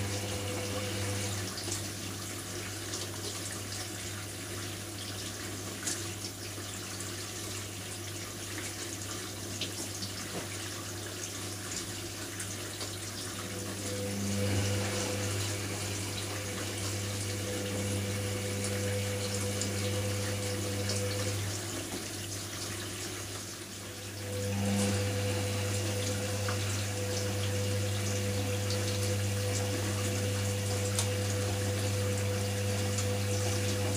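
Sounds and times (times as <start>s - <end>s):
washing machine motor whirring: 0.0s - 5.0s, 12.4s - 33.9s.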